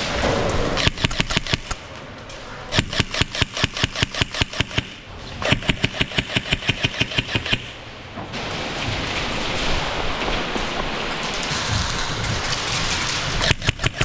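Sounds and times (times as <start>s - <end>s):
airsoft gun firing bursts: 0.8s - 1.8s, 2.7s - 7.8s, 13.4s - 14.0s.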